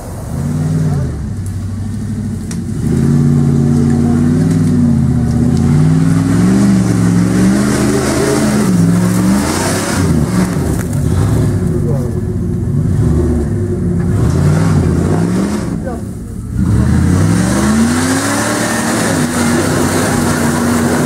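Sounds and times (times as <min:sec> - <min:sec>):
engine revving hard: 0:02.8 - 0:12.1, 0:12.7 - 0:21.0.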